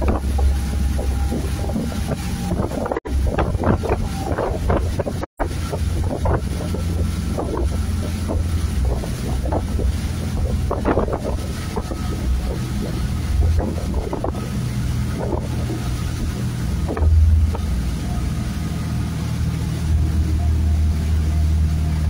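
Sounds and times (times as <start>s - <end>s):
boat engines droning: 0.0s - 22.0s
rush of churning wake: 0.0s - 22.0s
wind buffeting microphone: 0.0s - 22.0s.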